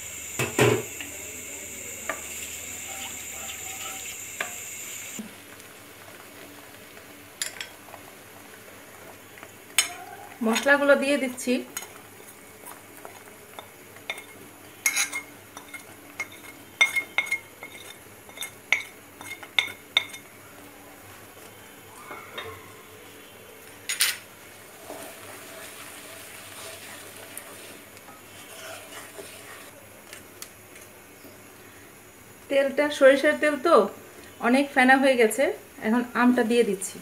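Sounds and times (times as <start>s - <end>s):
oil bubbling and sizzling: 0.0s - 32.6s
spoon clinking on ceramic plate: 13.6s - 20.2s
wooden spatula stirring: 24.6s - 30.2s.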